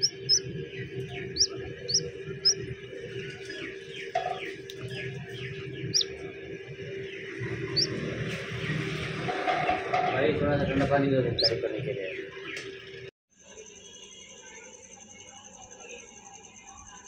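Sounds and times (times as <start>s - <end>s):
chick peeping: 0.0s - 8.8s, 10.4s - 12.6s
steady hum: 0.0s - 9.6s.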